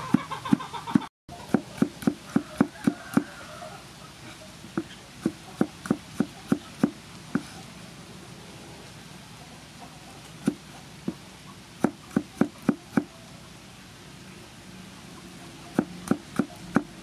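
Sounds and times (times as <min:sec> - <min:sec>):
cleaver chopping on wooden block: 0:01.5 - 0:03.3, 0:11.8 - 0:13.1, 0:15.8 - 0:17.0.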